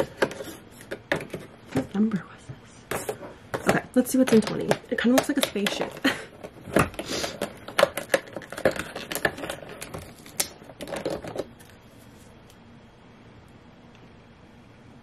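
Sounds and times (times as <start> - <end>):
packaging crinkling and clicking: 4.3 - 11.8.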